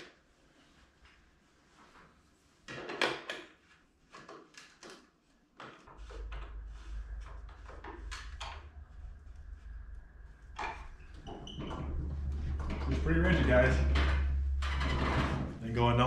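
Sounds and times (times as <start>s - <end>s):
steady low hum: 5.9s - 16.0s.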